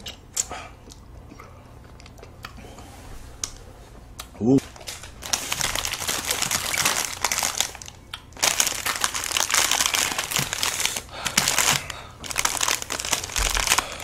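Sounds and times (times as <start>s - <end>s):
plastic wrappers crinkling: 4.6s - 14.0s.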